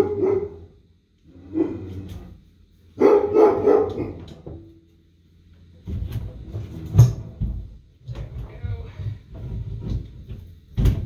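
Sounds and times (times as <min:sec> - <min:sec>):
dog barking: 0:00.0 - 0:00.8, 0:03.0 - 0:04.4.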